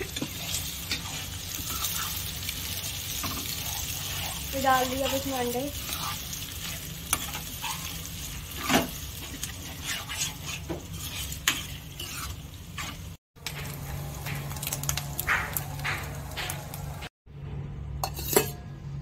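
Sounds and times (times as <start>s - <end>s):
light sizzle: 0.0s - 17.1s
spoon scraping in cooking pot: 3.2s - 13.6s.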